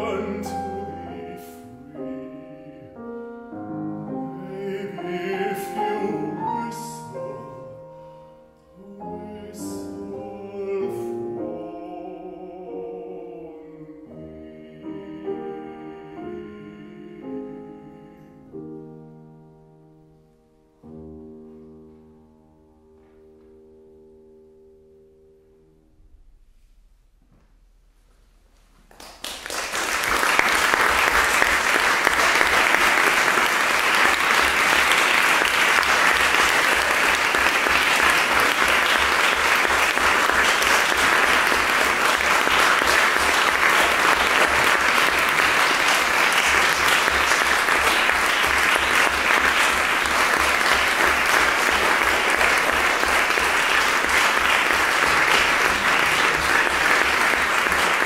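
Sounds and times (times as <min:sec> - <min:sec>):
audience applauding: 0:28.9 - 0:58.0.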